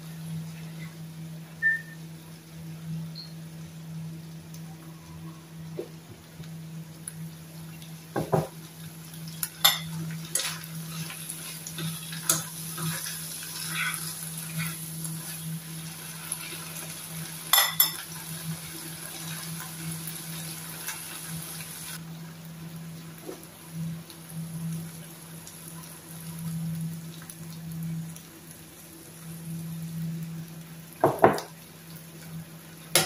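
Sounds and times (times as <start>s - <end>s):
food sizzling in frying pan: 0.0s - 33.0s.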